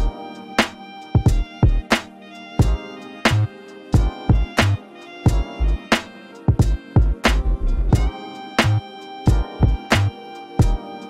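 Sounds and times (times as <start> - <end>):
steady drum beat: 0.0 - 11.0
sustained instrumental tones: 0.0 - 11.0
heavy bass: 2.6 - 5.9, 6.6 - 10.8.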